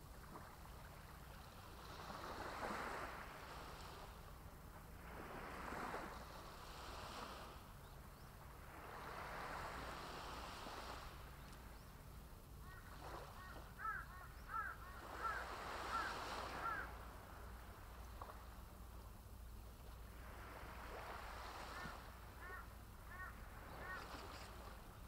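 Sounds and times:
small waves washing up beach: 0.0 - 7.8, 8.4 - 25.0
bird short calls: 12.6 - 16.9, 21.7 - 24.5.

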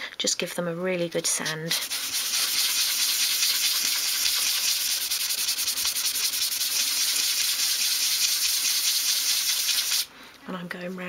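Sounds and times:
sandpaper rubbing wood: 1.4 - 10.1.

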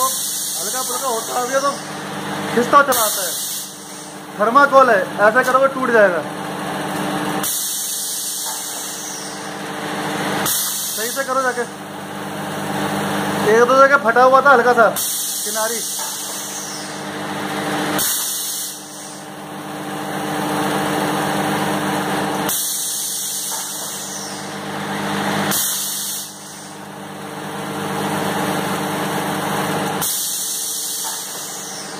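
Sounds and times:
machine hissing: 0.0 - 6.1, 7.3 - 11.8, 12.7 - 19.4, 21.7 - 31.9
machine humming: 0.0 - 31.9.

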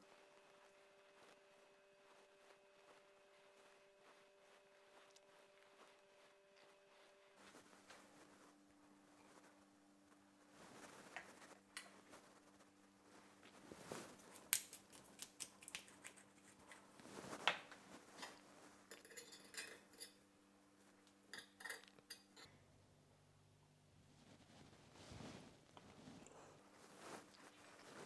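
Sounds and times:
faint steady hum: 0.0 - 28.0
utensils clinking on ceramic plate: 18.2 - 20.2, 21.3 - 22.6.

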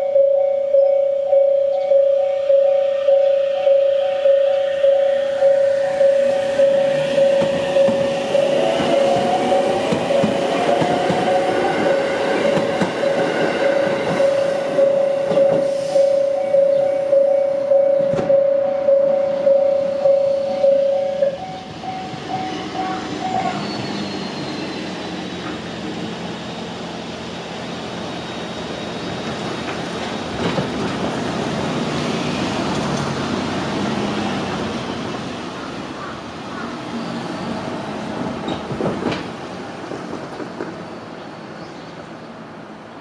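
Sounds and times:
railway crossing warning bell: 0.0 - 24.6
train wheels rumbling on rail: 4.8 - 43.0
sharp clacks of train wheels: 6.3 - 16.6, 18.0 - 18.4, 28.9 - 34.6, 37.4 - 40.9.

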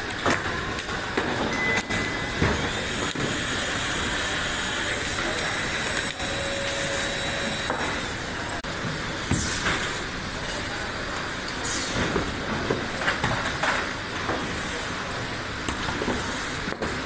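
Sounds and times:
assembly line machine noise: 0.0 - 17.0
high motor whine: 1.5 - 8.4.

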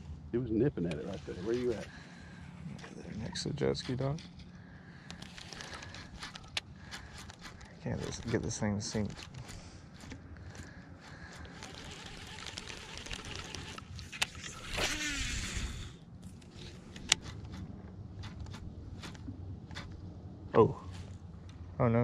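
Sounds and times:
reel spool whirring: 5.1 - 19.9
reel cranking: 5.1 - 20.0
fishing reel click: 11.5 - 15.8.

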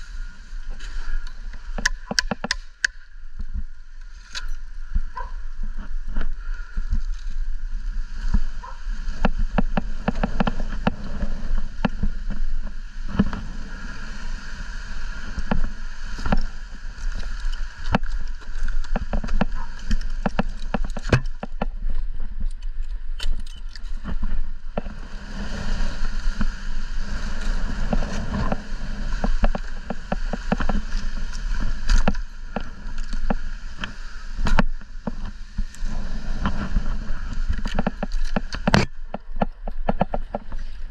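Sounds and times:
wind buffeting microphone: 0.0 - 40.9
sharp clicks and knocks: 1.7 - 3.0, 17.2 - 21.8.

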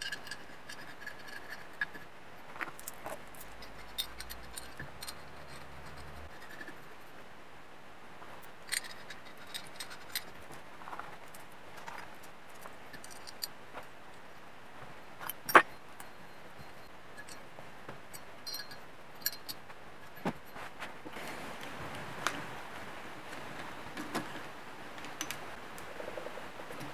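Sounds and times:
metal clicks and clinks: 0.0 - 2.1, 2.7 - 6.9, 8.6 - 10.4, 11.3 - 13.6, 15.2 - 17.5, 18.1 - 20.6.

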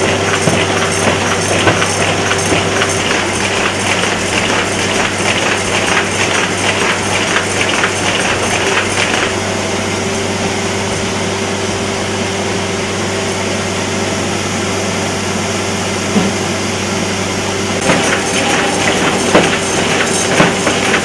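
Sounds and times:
paper folding machine humming: 0.0 - 12.0, 16.8 - 21.0.

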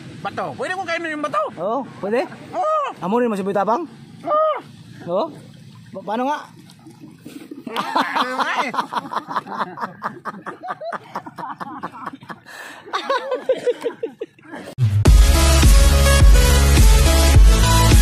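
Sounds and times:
person chuckling: 7.6 - 14.8
electronic dance music: 14.8 - 18.0.

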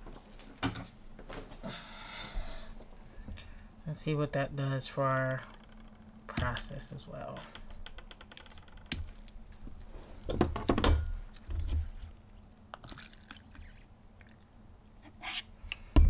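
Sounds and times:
liquid trickling into plastic cup: 12.8 - 14.6.

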